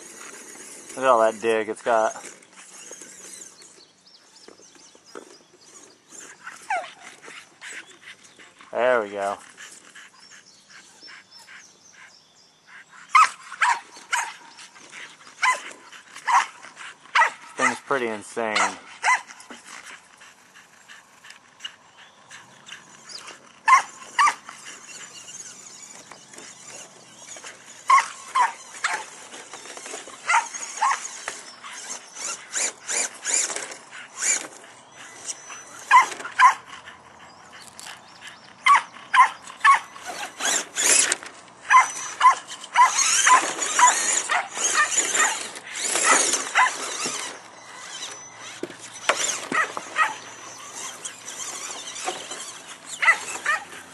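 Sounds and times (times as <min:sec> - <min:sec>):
dogs barking: 0:12.7 - 0:14.6, 0:15.3 - 0:19.7, 0:22.3 - 0:25.4, 0:26.6 - 0:33.4, 0:34.0 - 0:41.0, 0:41.6 - 0:53.8
scraping crunching noise: 0:22.7 - 0:36.8, 0:39.5 - 0:53.9.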